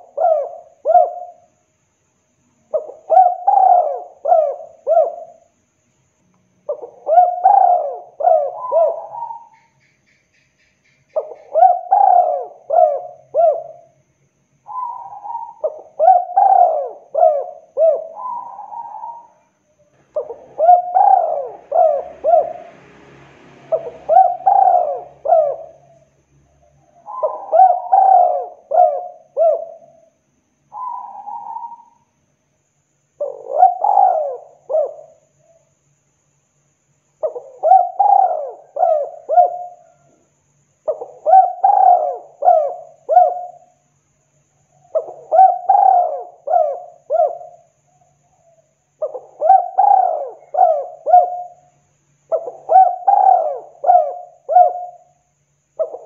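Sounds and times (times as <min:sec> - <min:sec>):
dove cooing: 0:00.0 - 0:01.5, 0:02.7 - 0:05.4, 0:06.6 - 0:09.8, 0:11.1 - 0:14.0, 0:14.7 - 0:19.4, 0:20.0 - 0:22.8, 0:23.7 - 0:30.1, 0:30.7 - 0:32.1, 0:33.2 - 0:35.6, 0:37.2 - 0:40.2, 0:40.8 - 0:43.8, 0:44.8 - 0:51.7, 0:52.3 - 0:55.1, 0:55.8 - 0:56.0.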